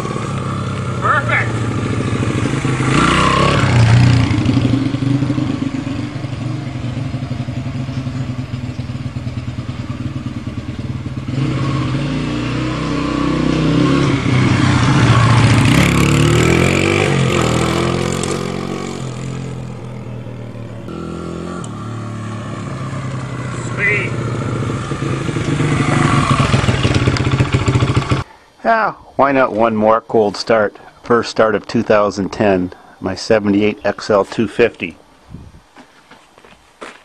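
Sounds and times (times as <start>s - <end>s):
dirt bike engine revving: 0.0s - 28.2s.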